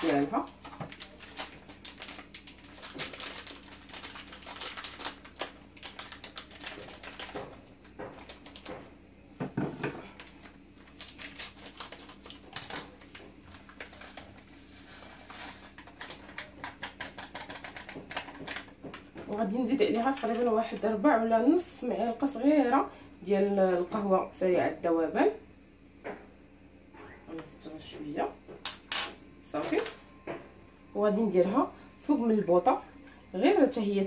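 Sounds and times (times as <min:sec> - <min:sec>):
packet crinkling and clicking: 0:00.1 - 0:08.8, 0:10.2 - 0:14.4.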